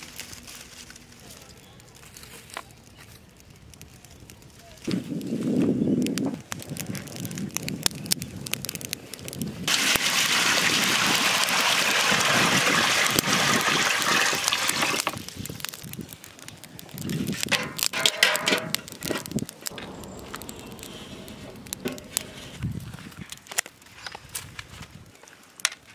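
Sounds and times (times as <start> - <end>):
water pouring into a pot: 9.7 - 15.2.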